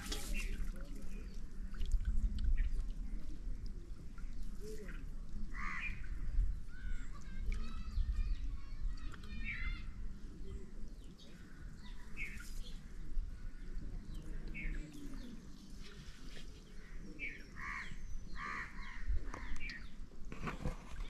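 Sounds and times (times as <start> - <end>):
birds chirping: 3.8 - 20.1.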